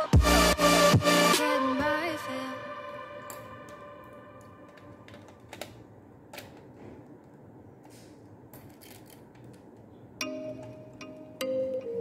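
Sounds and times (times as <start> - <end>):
music: 0.0 - 5.1, 10.2 - 12.0
plastic mechanism clicking: 4.7 - 6.7.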